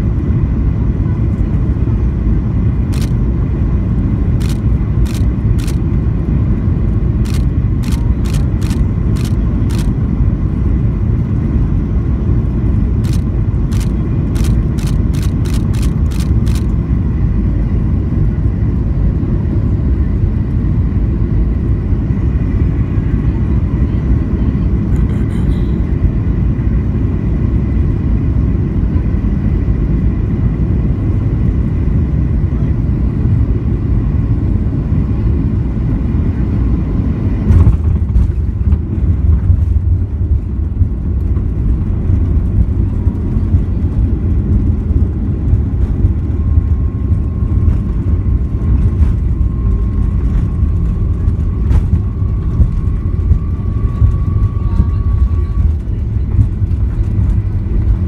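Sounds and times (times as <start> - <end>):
airplane cabin engine rumble: 0.0 - 58.0
runway rumble: 0.0 - 58.0
faint whine: 35.0 - 58.0.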